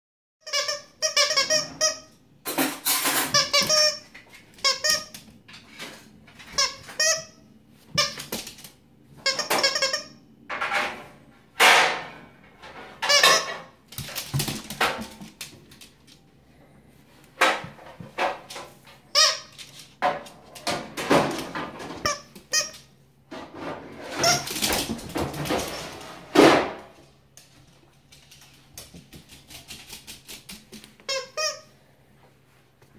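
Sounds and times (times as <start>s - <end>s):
squeaky toy squeaking: 0.4s - 2.1s, 3.3s - 4.0s, 4.6s - 5.1s, 9.2s - 10.2s, 13.0s - 13.7s, 19.1s - 19.5s, 31.1s - 31.7s.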